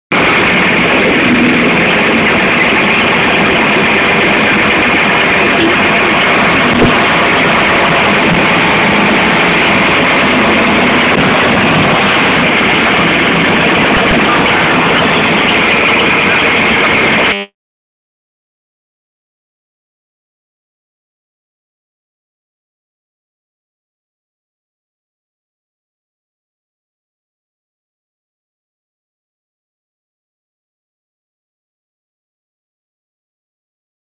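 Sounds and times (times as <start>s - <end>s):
vehicle engine running: 0.1s - 17.5s.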